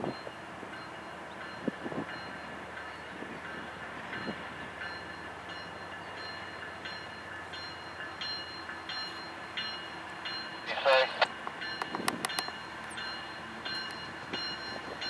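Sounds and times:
diesel locomotive engine running: 0.0 - 15.0
locomotive bell ringing: 0.0 - 15.0
train wheel clicks on rail: 11.2 - 15.0.

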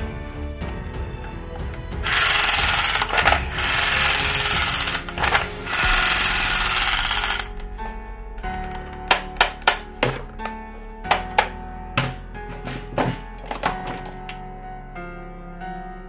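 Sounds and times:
toy gun electronic rattling: 2.0 - 7.5.

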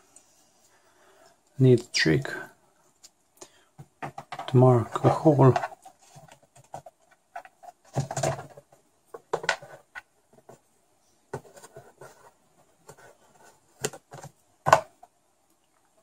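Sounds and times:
light taps and scrapes: 11.3 - 14.4
pencil tracing: 11.4 - 13.6.

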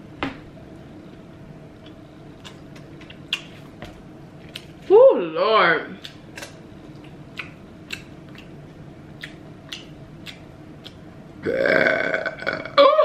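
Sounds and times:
wet mouth clicks from eating: 6.0 - 8.5
loud drawn-out burp: 11.4 - 12.8.

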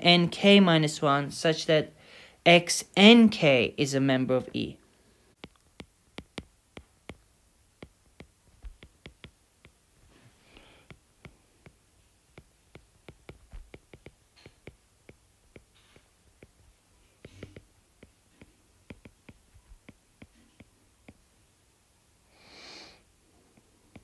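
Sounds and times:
stylus clicking on glass screen: 5.4 - 9.8, 10.9 - 16.6, 17.2 - 21.2.

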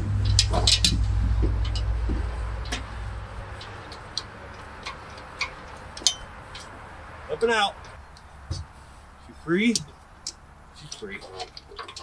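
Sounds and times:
low rumble: 0.0 - 10.8
chain clinking and ticking: 0.2 - 7.1.

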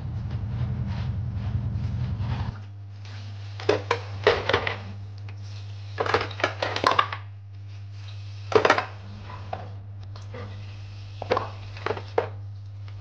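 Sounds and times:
low hum: 0.0 - 6.0, 7.3 - 11.7.

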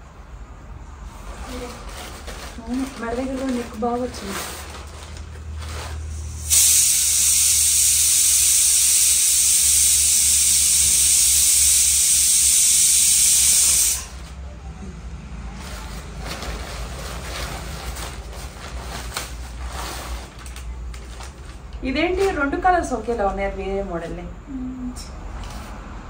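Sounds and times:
loud high-pitched hiss: 6.3 - 14.2.

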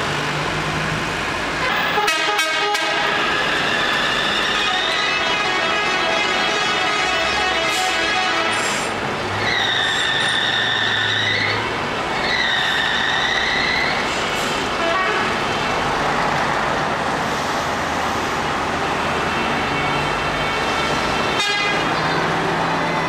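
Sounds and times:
vehicles passing slowly: 0.0 - 23.0
car horns honking: 1.6 - 3.5, 4.2 - 8.9, 14.8 - 15.4, 19.3 - 21.9.

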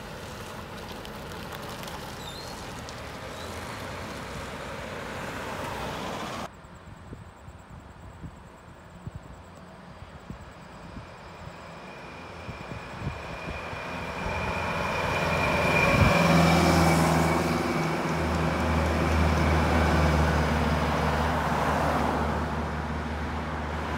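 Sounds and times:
car passing: 0.0 - 6.5, 10.5 - 23.9
low engine hum: 8.4 - 23.9.

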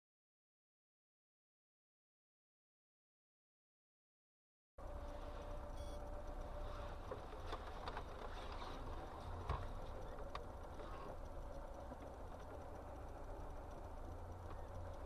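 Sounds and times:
car cabin road and engine rumble: 4.8 - 15.0.

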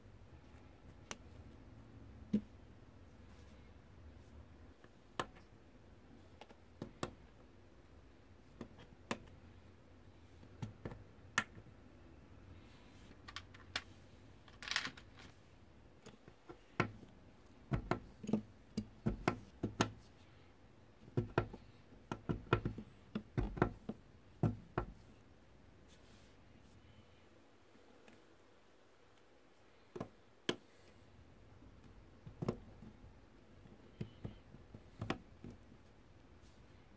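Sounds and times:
plastic parts clicking: 14.5 - 15.3
plastic pieces rattling: 14.5 - 15.4.

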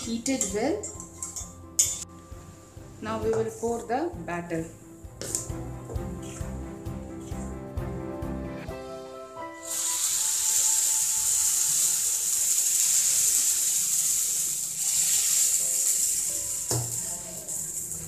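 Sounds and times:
batter sizzling in hot oil: 9.6 - 18.0.

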